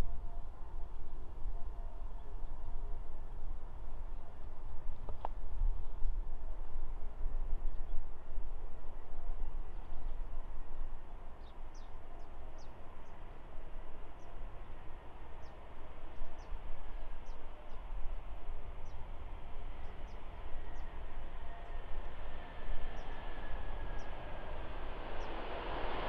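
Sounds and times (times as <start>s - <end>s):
jet airliner engines rumbling: 0.0s - 26.0s
bird chirps: 19.7s - 25.4s.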